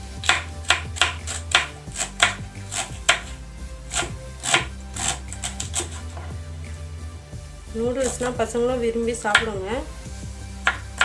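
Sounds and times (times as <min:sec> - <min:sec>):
knife chopping cabbage on board: 0:00.2 - 0:06.3, 0:10.7 - 0:11.0.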